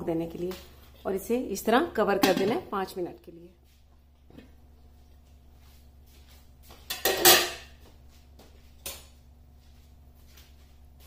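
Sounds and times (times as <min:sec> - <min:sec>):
metal pot lid clattering: 0:06.9 - 0:07.7.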